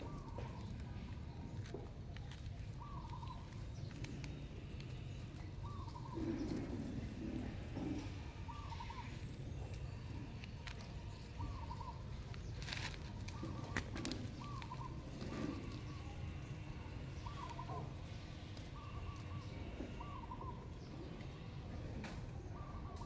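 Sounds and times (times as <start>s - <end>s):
low cooing: 5.6s - 9.3s, 11.2s - 12.0s, 13.3s - 20.7s
bird wavering call: 13.2s - 15.7s.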